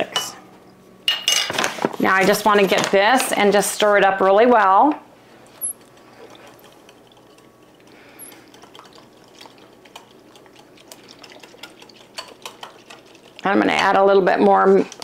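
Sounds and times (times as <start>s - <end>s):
liquid swishing: 5.2s - 15.0s
whisk ticking against glass: 6.4s - 13.5s.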